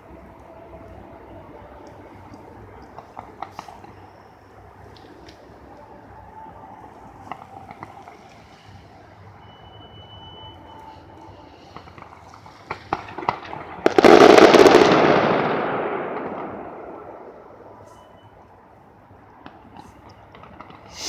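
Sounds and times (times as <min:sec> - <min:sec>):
fireworks popping and banging: 0:02.8 - 0:04.2, 0:07.2 - 0:08.8, 0:11.4 - 0:17.8, 0:19.4 - 0:21.0
loud firework burst: 0:11.3 - 0:18.0.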